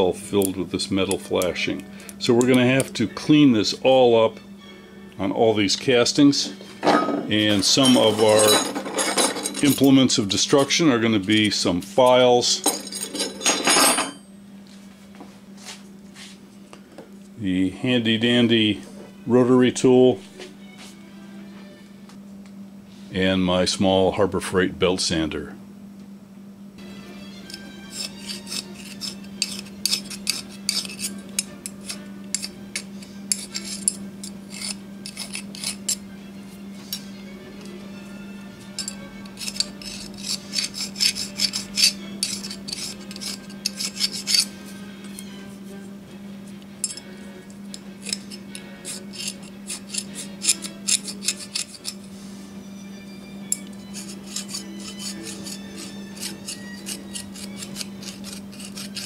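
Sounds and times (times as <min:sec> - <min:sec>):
steady low hum: 0:00.0 - 0:59.0
hand file rasping on metal: 0:27.5 - 0:36.0, 0:38.8 - 0:45.3, 0:47.7 - 0:52.1, 0:53.8 - 0:59.0.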